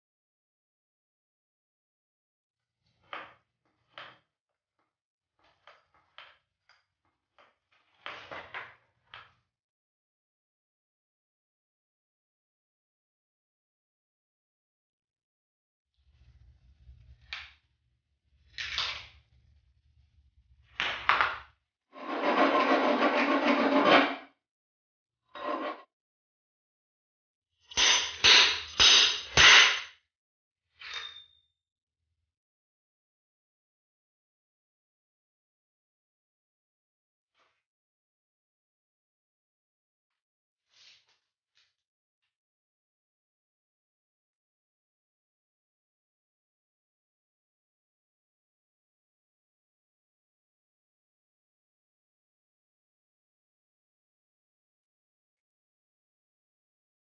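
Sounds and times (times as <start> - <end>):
metal tube clanging: 27.7 - 29.9.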